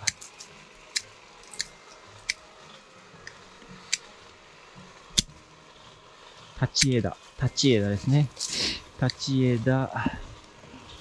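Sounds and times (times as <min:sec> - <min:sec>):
pruning shears snipping: 0:00.0 - 0:02.5, 0:03.2 - 0:04.1, 0:06.6 - 0:07.1, 0:08.0 - 0:09.4.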